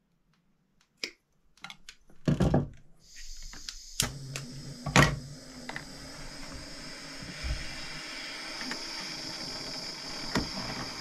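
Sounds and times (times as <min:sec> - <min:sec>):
butane torch hissing: 0:03.0 - 0:11.0.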